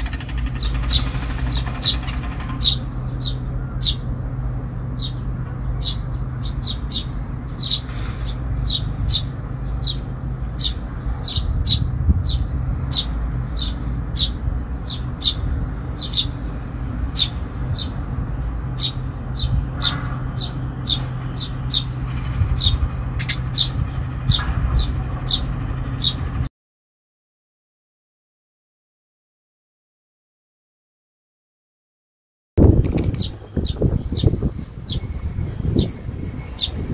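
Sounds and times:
sparrow chirping: 0.0s - 26.4s, 32.7s - 36.9s
steady low hum: 0.0s - 26.5s.

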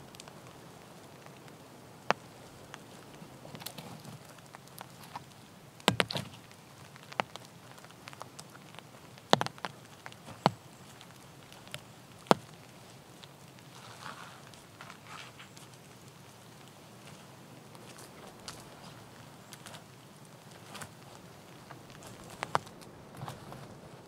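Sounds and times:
dry sticks snapping: 2.1s - 12.6s, 19.5s - 23.3s.

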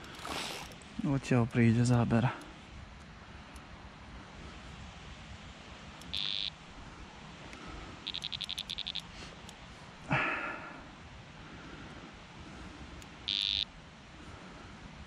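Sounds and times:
electronic bite alarm beeping: 6.0s - 6.6s, 8.0s - 9.1s, 13.3s - 13.7s.

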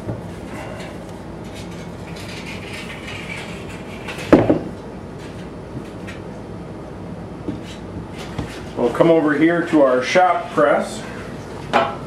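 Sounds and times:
parts scraping together: 0.3s - 4.4s.

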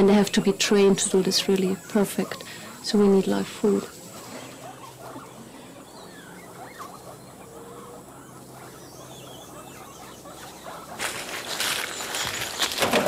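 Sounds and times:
small animals squeaking: 0.0s - 13.0s
rustling: 10.2s - 13.0s.

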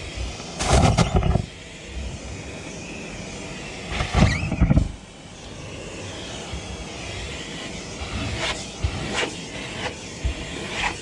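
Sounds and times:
car vacuum running: 0.0s - 11.0s
vacuum suction rushes on carpet: 0.0s - 11.0s.

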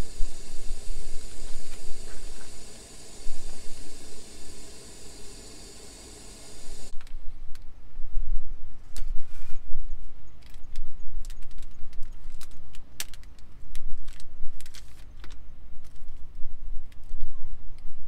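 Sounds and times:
low unsteady rumble: 0.0s - 6.9s.

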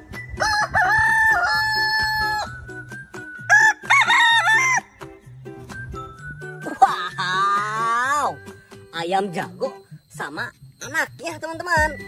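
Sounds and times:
faint background music with beat: 0.0s - 12.0s
rooster crowing: 0.4s - 2.6s, 3.4s - 4.9s.

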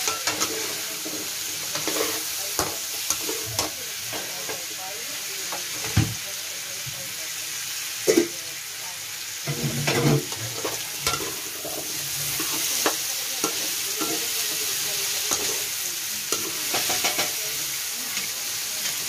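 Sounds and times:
metal spatula scraping pan: 0.0s - 4.6s, 9.5s - 15.7s, 16.3s - 17.4s
vegetables sizzling in hot oil: 0.0s - 19.0s.

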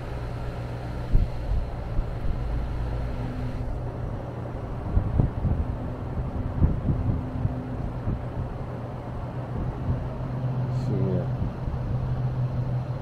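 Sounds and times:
air conditioner humming: 0.0s - 13.0s
wind buffeting microphone: 3.6s - 13.0s
low thumps: 4.8s - 8.7s.

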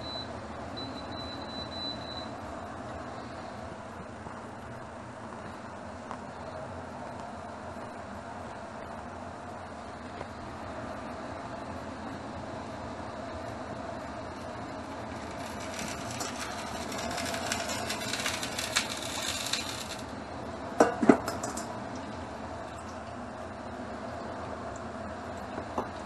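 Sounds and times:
fan hum: 0.0s - 26.0s
hot oil crackling and sizzling: 12.2s - 20.5s.

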